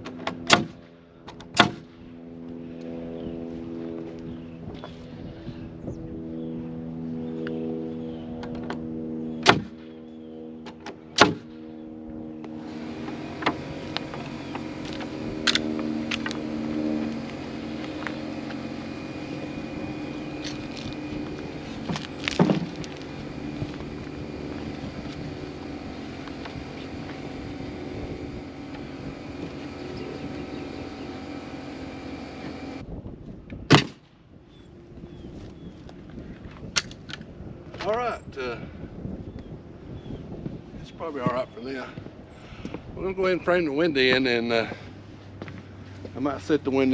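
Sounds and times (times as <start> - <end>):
steady mechanical hum: 0.0 - 46.9
nail gun shots: 0.2 - 0.8, 1.5 - 1.8, 9.4 - 9.8, 11.2 - 11.5, 33.7 - 34.0.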